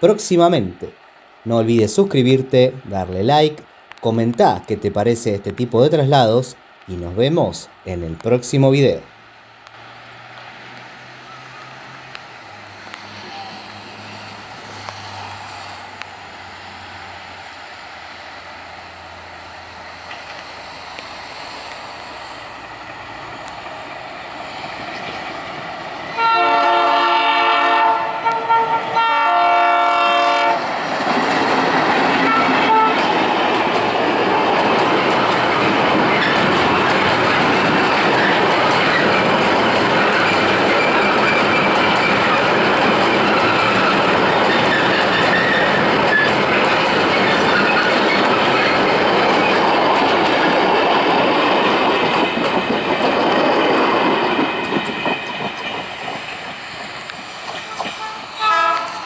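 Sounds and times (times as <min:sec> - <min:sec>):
diesel locomotive engine running: 0:09.2 - 0:59.0
train wheels clattering: 0:22.7 - 0:26.3, 0:30.0 - 0:59.0
locomotive air horn blasts: 0:26.2 - 0:30.6, 0:32.2 - 0:33.0, 0:58.0 - 0:59.0.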